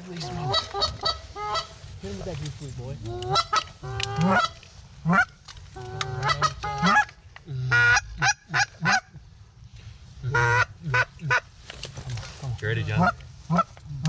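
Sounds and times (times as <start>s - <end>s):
goose call honking: 0.2s - 1.8s, 3.0s - 9.2s, 10.2s - 11.5s, 12.8s - 13.8s.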